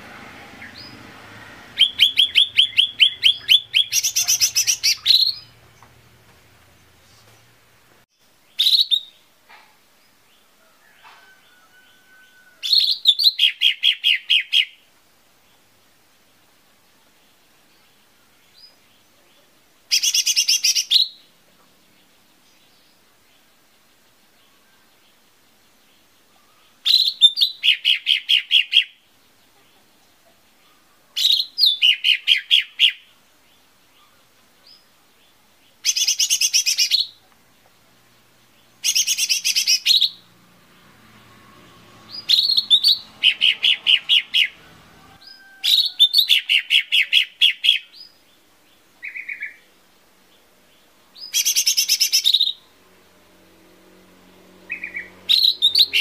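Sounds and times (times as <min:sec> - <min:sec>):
bird singing sharp chirps: 0:00.0 - 0:06.0, 0:08.5 - 0:09.3, 0:11.2 - 0:14.8, 0:19.9 - 0:21.3, 0:26.3 - 0:29.0, 0:30.6 - 0:33.1, 0:35.7 - 0:37.2, 0:38.6 - 0:48.2, 0:51.2 - 0:52.7, 0:54.3 - 0:56.0
buzzy bird trills: 0:01.7 - 0:05.8, 0:38.8 - 0:40.3, 0:41.5 - 0:47.9, 0:54.6 - 0:56.0.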